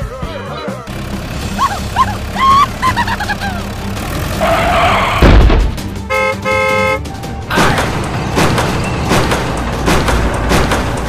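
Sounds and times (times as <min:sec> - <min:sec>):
toy car horn honking: 0:06.1 - 0:07.0.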